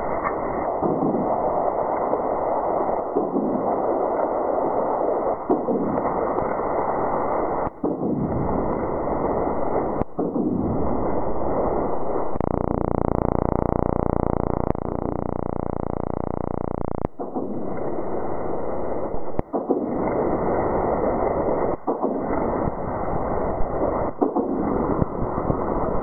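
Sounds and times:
steady buzz: 12.4 - 17.2.

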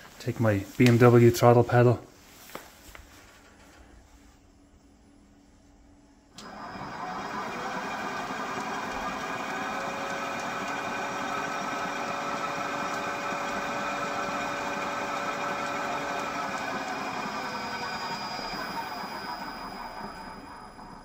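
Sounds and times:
mechanical whirr with gear whine: 14.5 - 21.0.

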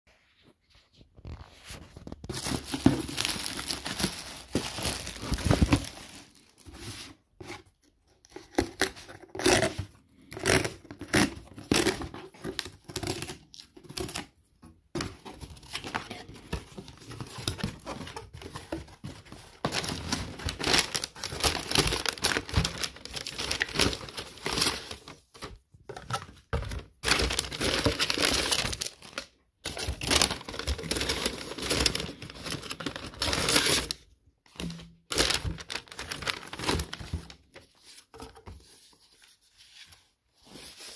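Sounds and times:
packaging crinkling and tearing: 1.2 - 7.0, 15.4 - 37.5.

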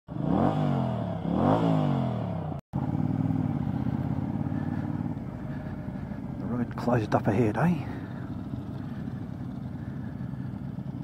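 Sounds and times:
motorcycle engine revving: 0.1 - 11.0
motorcycle engine running steadily: 0.1 - 11.0.

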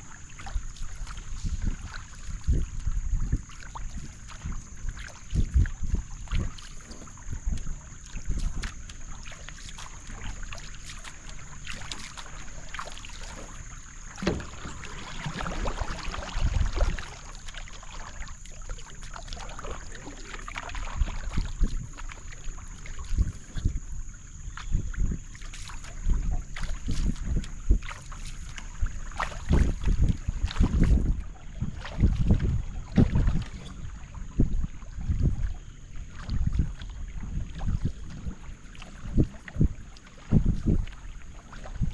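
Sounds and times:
wind buffeting microphone: 0.0 - 10.5, 14.2 - 17.3, 19.4 - 41.9
paddle strokes in water: 0.0 - 41.9
water swishing along hull: 0.0 - 41.9.

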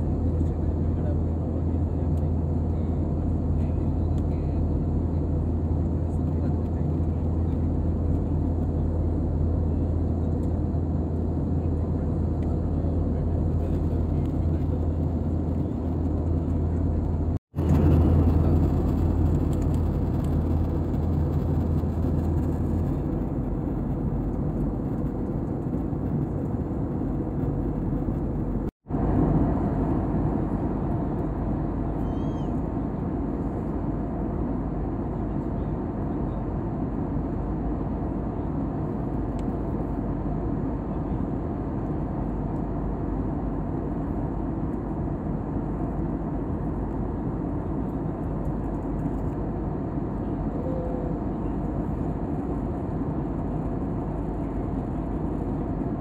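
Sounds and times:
low hum: 0.0 - 56.0
moving vehicle rumble and hiss: 0.0 - 56.0
faint chirp: 31.9 - 32.6.

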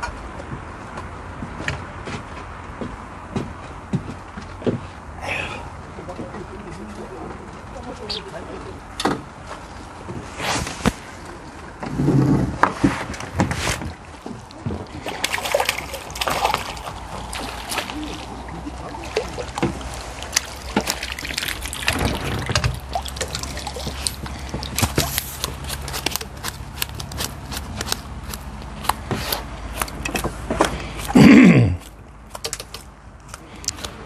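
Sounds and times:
water splashing and dripping: 13.1 - 29.1
fishing tackle clicks and knocks: 32.3 - 33.9.

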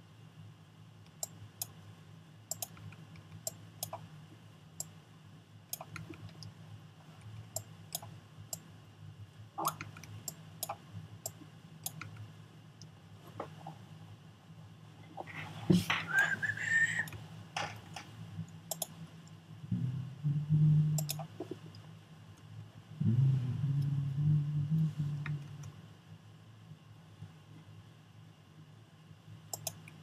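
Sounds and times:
steady low hum: 0.0 - 30.0
mouse and keyboard clicks: 2.5 - 4.0, 5.7 - 6.5, 9.6 - 12.3, 18.7 - 19.0, 21.0 - 21.3, 29.5 - 30.0.

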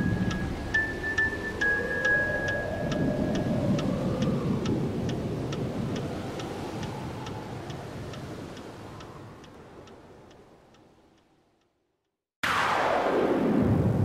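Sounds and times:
low rushing wash: 0.0 - 10.7
sharp electronic ticks: 0.0 - 10.9.

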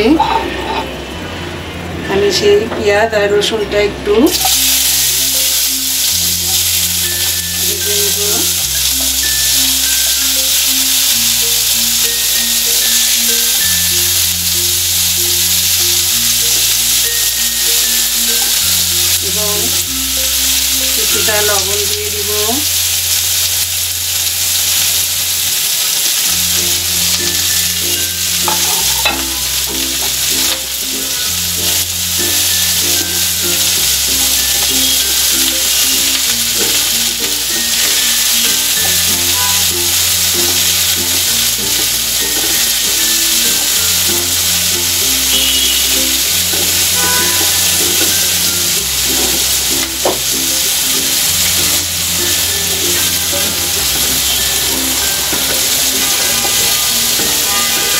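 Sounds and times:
background music: 0.0 - 57.9
onion sizzling in oil: 0.0 - 57.9.

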